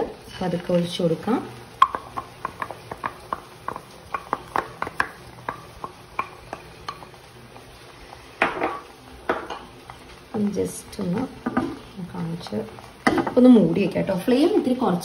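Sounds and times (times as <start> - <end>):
spatula clicking on frying pan: 1.8 - 7.2.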